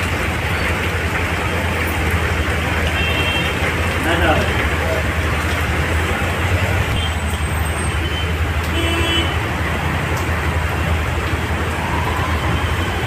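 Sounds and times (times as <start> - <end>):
heavy rain on a street: 0.0 - 13.0
road traffic noise: 0.0 - 13.0
car horn toot: 3.0 - 3.5, 8.1 - 9.4.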